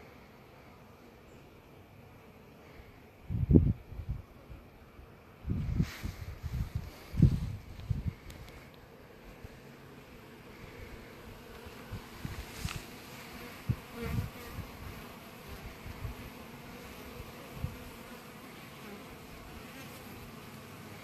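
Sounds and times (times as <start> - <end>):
bees buzzing: 8.0 - 21.0.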